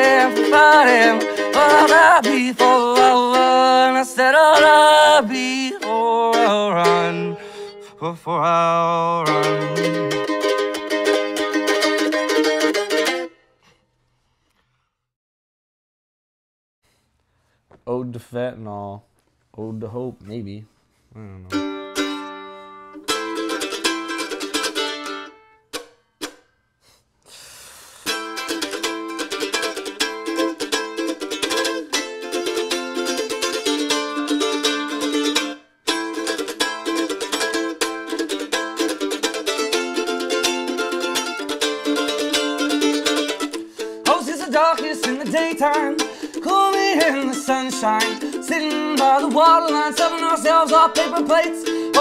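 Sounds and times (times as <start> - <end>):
mandolin picking quick runs: 0.0 - 7.6, 9.0 - 13.4, 21.5 - 26.4, 28.1 - 52.0
person singing: 0.0 - 11.8, 21.2 - 21.8, 40.2 - 52.0.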